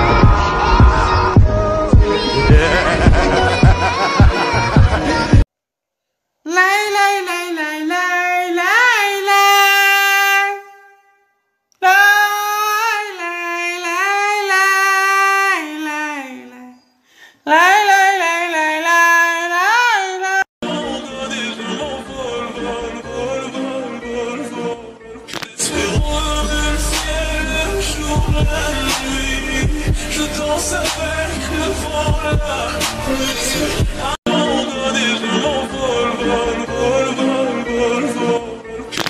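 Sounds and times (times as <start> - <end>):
music track with bass: 0.0 - 5.4, 20.8 - 39.0
person singing slow melody: 25.6 - 38.6.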